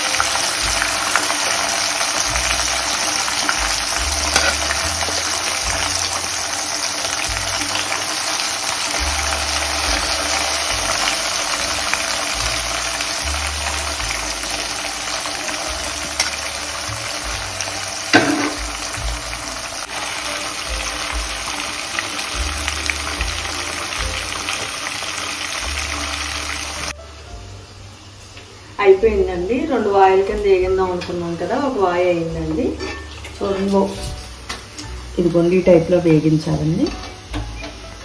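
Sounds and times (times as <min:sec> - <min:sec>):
chicken deep-frying in oil: 0:00.0 - 0:27.0
steel spoon stirring: 0:01.0 - 0:18.5.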